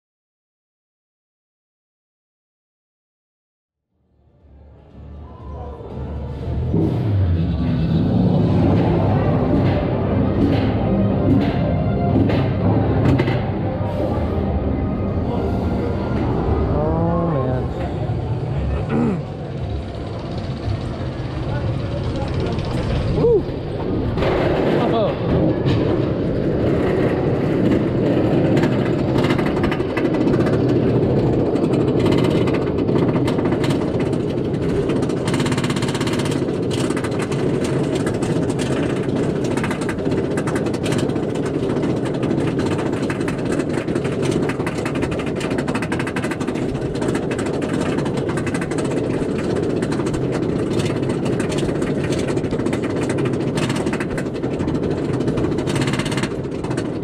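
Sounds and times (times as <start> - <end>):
roller coaster lift chain clatter: 7.5 - 13.6, 17.7 - 57.0.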